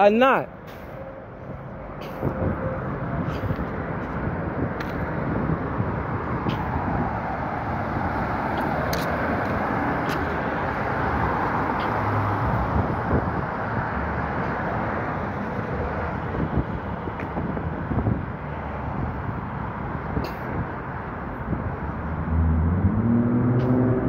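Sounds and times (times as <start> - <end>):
city road traffic: 0.0 - 24.0.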